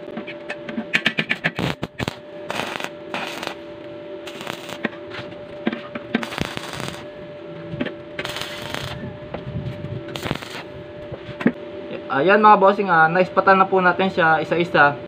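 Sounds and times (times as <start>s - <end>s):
steady welder hum: 0.0s - 15.0s
welding arc crackling: 1.1s - 5.0s, 6.1s - 7.4s, 8.2s - 9.1s, 10.1s - 10.8s.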